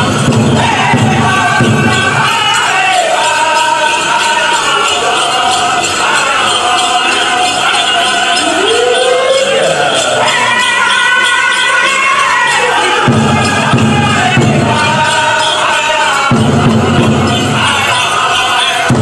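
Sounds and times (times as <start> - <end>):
drum: 0.0 - 6.0, 10.0 - 19.0
bells jingling: 0.0 - 19.0
high-pitched singing: 0.0 - 19.0.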